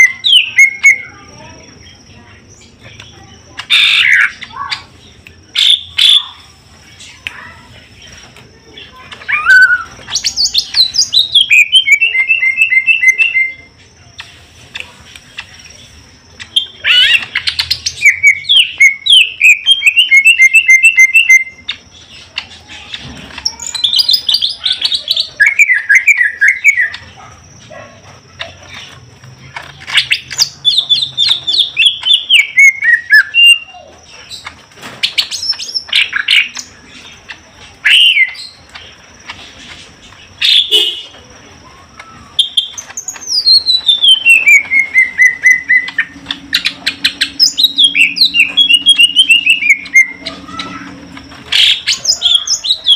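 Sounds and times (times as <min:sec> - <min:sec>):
birds singing loudly: 0:00.0 - 0:52.9.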